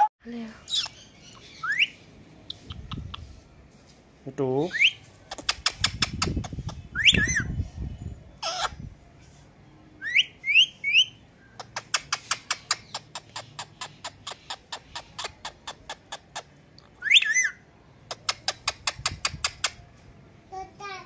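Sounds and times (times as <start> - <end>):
parakeet rising whistles: 7.0 - 7.5.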